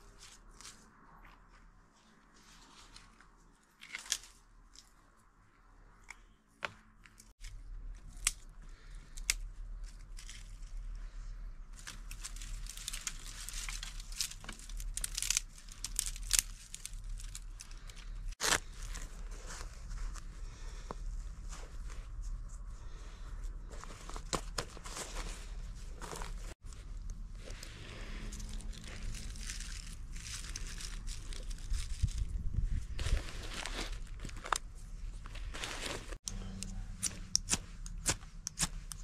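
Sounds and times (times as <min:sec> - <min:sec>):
dry twigs crackling and snapping: 0:03.7 - 0:05.0, 0:07.0 - 0:11.1, 0:11.7 - 0:19.0, 0:26.0 - 0:34.6
tinder rustling from pouch: 0:09.8 - 0:36.2.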